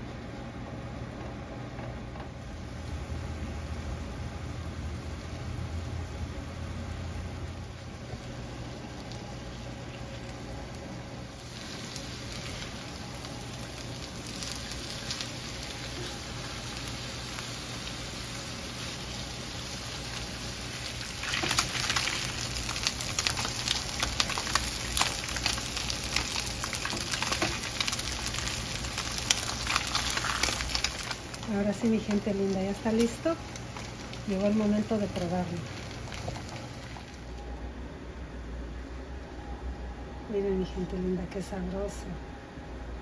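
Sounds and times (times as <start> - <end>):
fish sizzling and popping in pan: 11.3 - 37.3.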